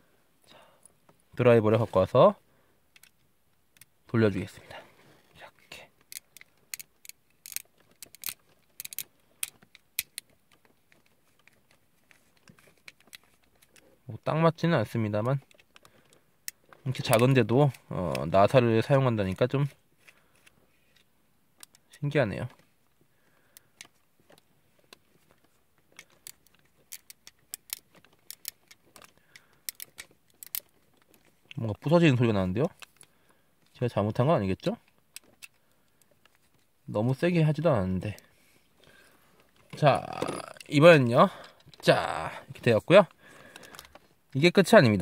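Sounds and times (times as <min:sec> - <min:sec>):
screw creaking into plastic: 0:06.0 - 0:10.3, 0:25.9 - 0:31.4.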